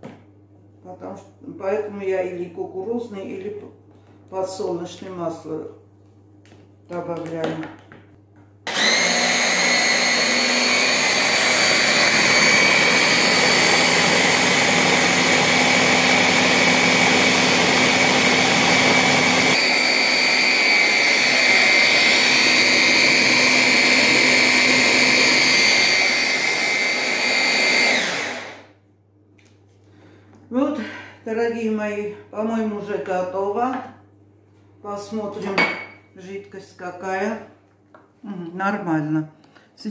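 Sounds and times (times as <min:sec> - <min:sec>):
hand blender whirring: 0:08.6 - 0:28.8.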